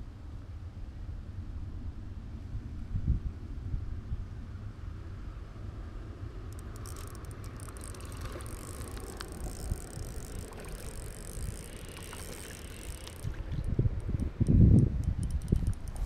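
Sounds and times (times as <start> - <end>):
fishing reel whirring and ticking: 6.4 - 16.0.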